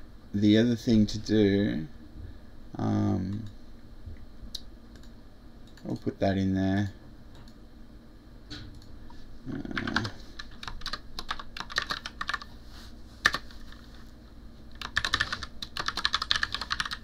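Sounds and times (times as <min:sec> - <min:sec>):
typing on computer keyboard: 0:09.7 - 0:12.5, 0:14.8 - 0:17.0.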